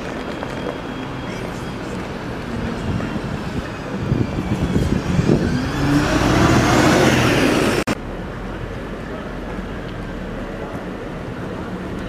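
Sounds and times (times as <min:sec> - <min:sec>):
rising whine: 0:00.3 - 0:08.0
large vehicle passing: 0:01.9 - 0:08.6.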